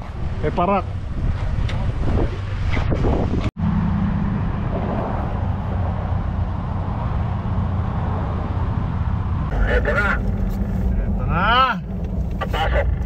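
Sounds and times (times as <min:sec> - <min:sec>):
wind noise on microphone: 0:00.0 - 0:09.5
vehicle engines rumbling: 0:00.0 - 0:13.0.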